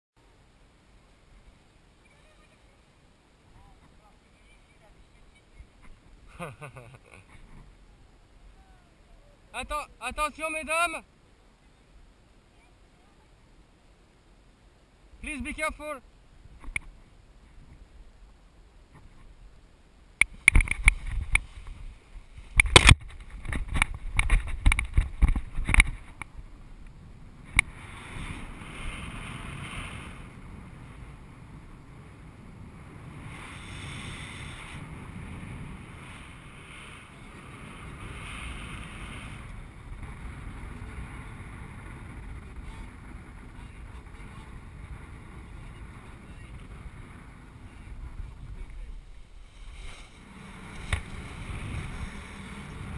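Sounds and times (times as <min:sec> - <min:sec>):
wind rushing over microphone: 0:20.2 - 0:52.9.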